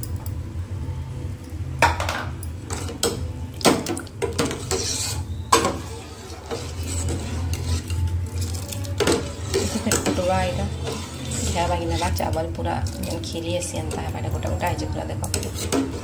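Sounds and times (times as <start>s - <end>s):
low hum: 0.0s - 15.4s
ladle scraping steel pan: 4.2s - 16.0s.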